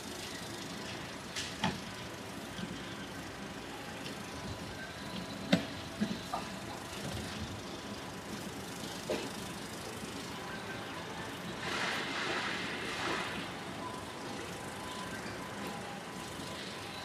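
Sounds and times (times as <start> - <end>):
open-air ambience: 0.0 - 17.0.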